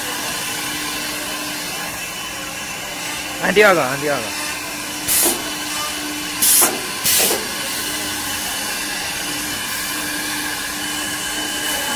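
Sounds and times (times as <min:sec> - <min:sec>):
drilling machine hissing: 0:00.0 - 0:11.9
sharp air bursts: 0:05.0 - 0:05.7, 0:06.4 - 0:07.8.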